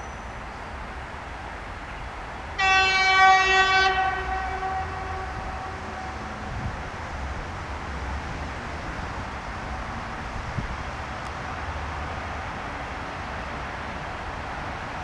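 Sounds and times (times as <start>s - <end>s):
locomotive horn blast: 2.6s - 6.2s.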